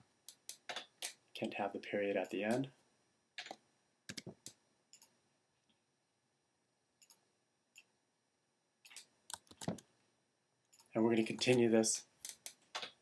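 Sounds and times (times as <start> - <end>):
keyboard and mouse clicks: 0.3 - 1.2, 3.4 - 5.2, 7.0 - 7.2, 8.8 - 9.9, 10.7 - 13.0.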